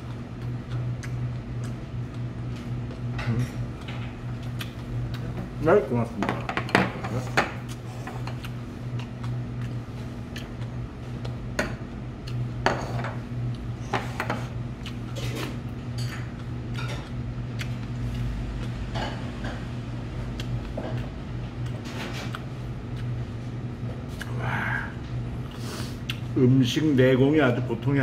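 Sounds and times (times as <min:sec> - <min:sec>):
chewing and mouth noises: 0:00.0 - 0:05.6, 0:07.6 - 0:11.4, 0:14.7 - 0:15.6, 0:16.2 - 0:18.8, 0:20.2 - 0:23.4, 0:24.0 - 0:24.4, 0:25.4 - 0:26.3
steady low hum: 0:00.0 - 0:28.0.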